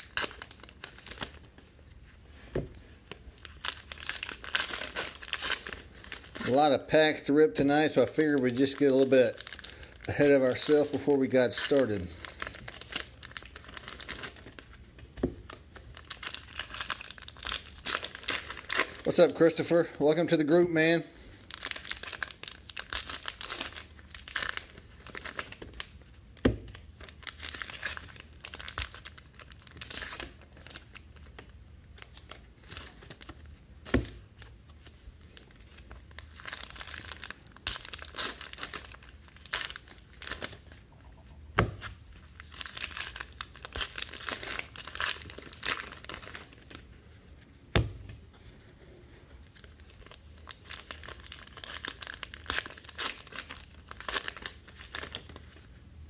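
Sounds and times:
foil wrappers crinkling: 0:03.1 - 0:14.8, 0:15.4 - 0:31.3, 0:34.9 - 0:40.8, 0:41.8 - 0:46.9, 0:49.5 - 0:55.7.

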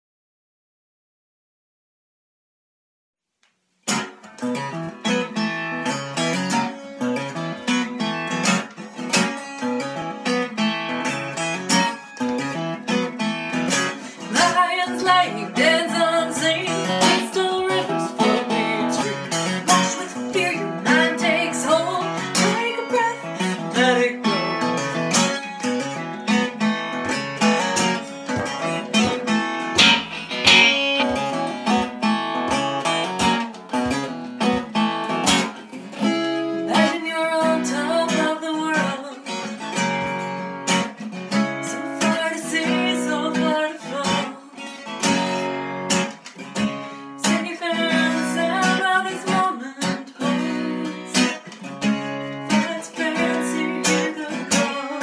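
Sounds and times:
acoustic guitar strumming: 0:03.8 - 0:55.0
woman singing: 0:14.2 - 0:24.7, 0:36.6 - 0:39.5, 0:41.6 - 0:44.8, 0:47.2 - 0:51.4, 0:52.5 - 0:55.0.

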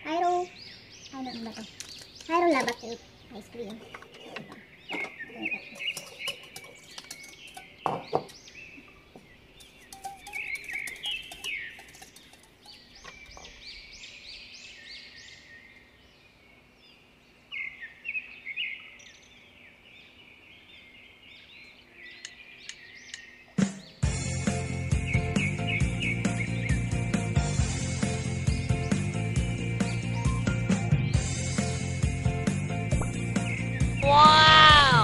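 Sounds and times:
small birds chirping: 0:00.0 - 0:35.0
cookware knocking and clinking: 0:03.7 - 0:08.4, 0:09.7 - 0:12.8.

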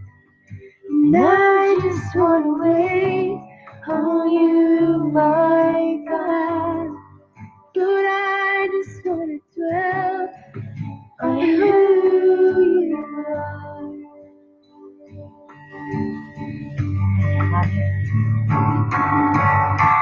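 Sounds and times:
woman singing worship song: 0:00.9 - 0:07.1, 0:07.8 - 0:10.4, 0:11.2 - 0:14.4.

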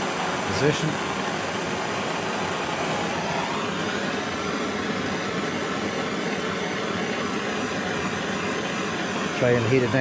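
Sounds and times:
blowtorch hissing: 0:00.0 - 0:10.0.

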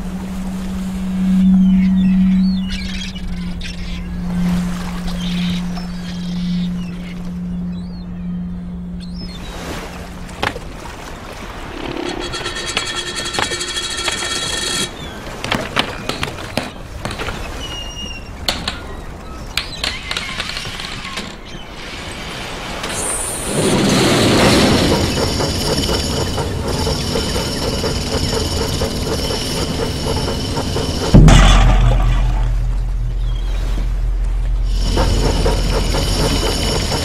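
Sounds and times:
mechanical rumble: 0:11.4 - 0:15.2, 0:20.8 - 0:37.0
steady ringing tones: 0:11.5 - 0:15.2, 0:23.7 - 0:37.0.

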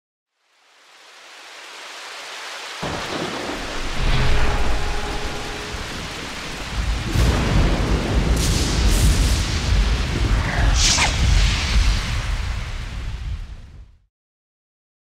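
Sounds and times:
rain hiss: 0:00.3 - 0:13.9
low rumbling thunder: 0:02.8 - 0:14.0.

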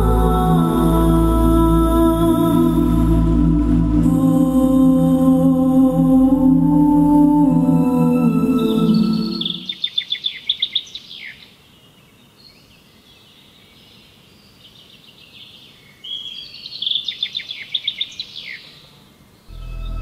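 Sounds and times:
bird song fast high notes: 0:07.9 - 0:10.0, 0:19.5 - 0:20.0
quieter bird calls: 0:08.6 - 0:20.0.

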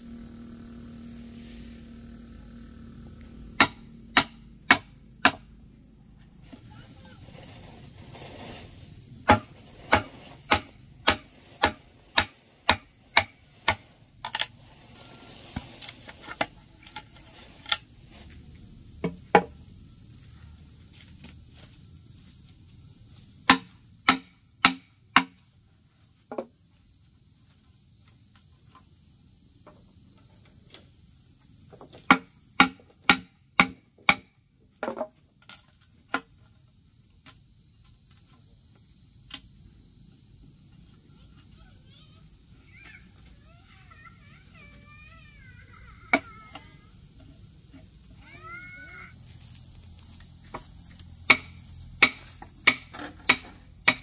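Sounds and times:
insects trilling: 0:00.0 - 0:54.0
sharp hand tool strikes: 0:03.6 - 0:05.5, 0:09.3 - 0:13.9, 0:23.5 - 0:25.4, 0:32.1 - 0:34.3, 0:51.3 - 0:54.0.

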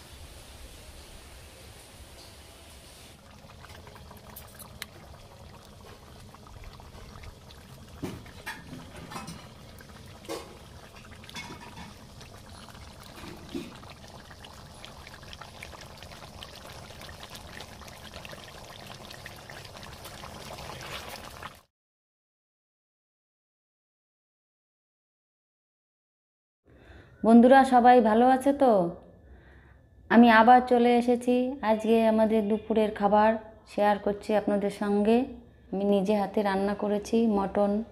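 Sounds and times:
wood fire crackling and hissing: 0:00.0 - 0:21.6.

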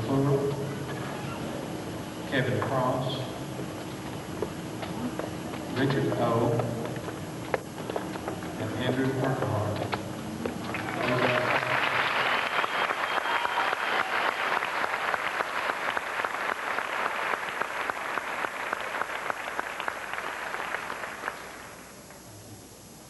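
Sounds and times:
audience applauding: 0:10.6 - 0:21.8.

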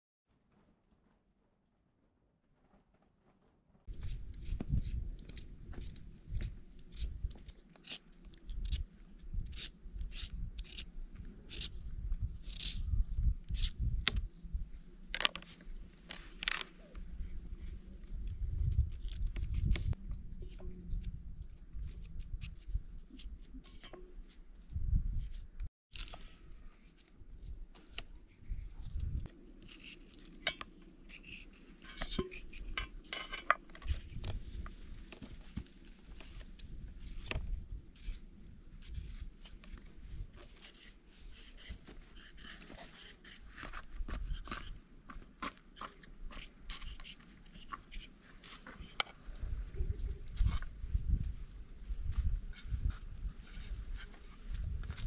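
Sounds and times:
potato peeling and cutting: 0:04.0 - 0:14.2, 0:17.6 - 0:20.0, 0:21.8 - 0:24.4, 0:28.8 - 0:33.1, 0:38.0 - 0:44.8, 0:45.4 - 0:49.1.

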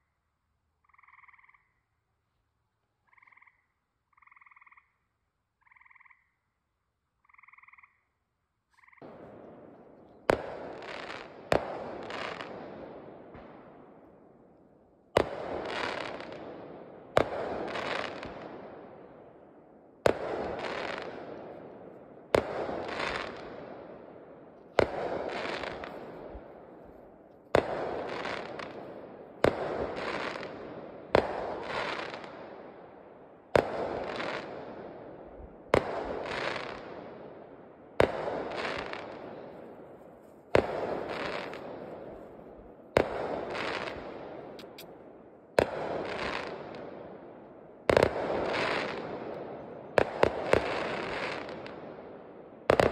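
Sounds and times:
fireworks bangs: 0:09.0 - 0:14.3, 0:15.1 - 0:19.1, 0:20.0 - 0:32.8, 0:33.5 - 0:37.4, 0:38.0 - 0:52.9.

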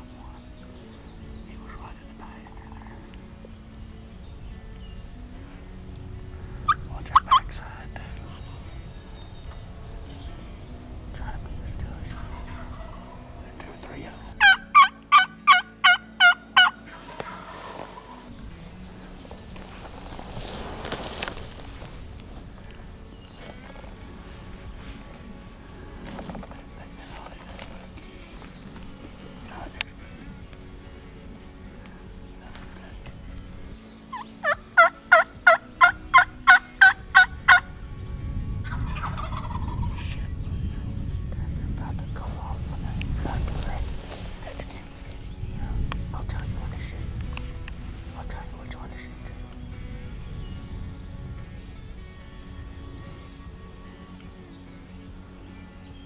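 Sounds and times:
turkey yelps: 0:12.3 - 0:13.2, 0:14.4 - 0:18.2, 0:34.1 - 0:37.6.

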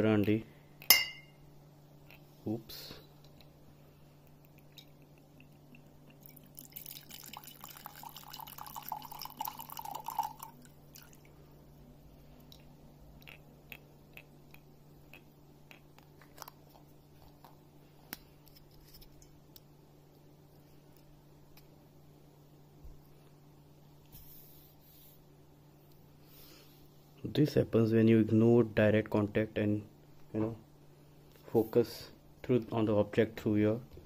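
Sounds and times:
liquid pouring into mug: 0:06.1 - 0:11.4.

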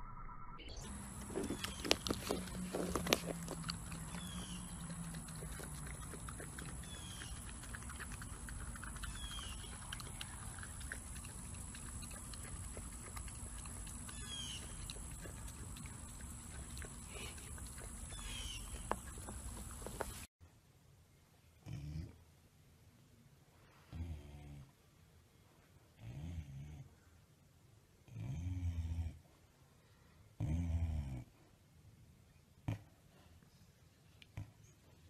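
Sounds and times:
puppy licking and lapping: 0:00.8 - 0:20.3.

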